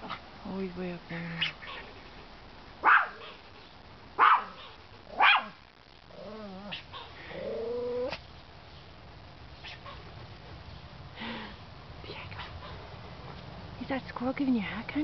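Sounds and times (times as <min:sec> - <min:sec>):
dog yelping: 0:02.8 - 0:03.4, 0:04.2 - 0:05.6, 0:06.3 - 0:08.2
small dog barking: 0:02.8 - 0:03.4, 0:04.2 - 0:05.6, 0:06.6 - 0:07.1, 0:09.6 - 0:10.0
dog whining: 0:06.2 - 0:08.2.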